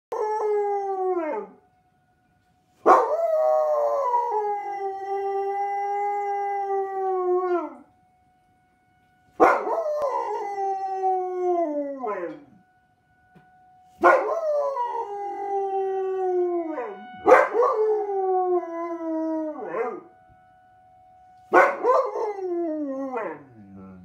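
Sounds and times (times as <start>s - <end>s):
sirens: 0.1s - 1.8s, 2.4s - 24.0s
dog howling: 9.4s - 12.6s, 14.0s - 20.1s.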